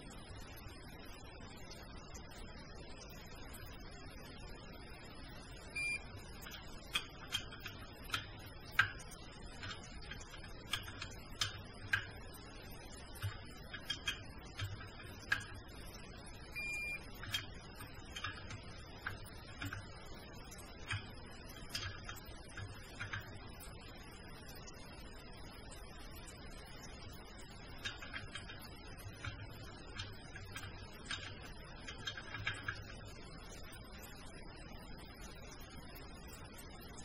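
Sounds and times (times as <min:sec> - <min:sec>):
short electronic beep: 0:05.8 - 0:06.0, 0:16.6 - 0:17.1.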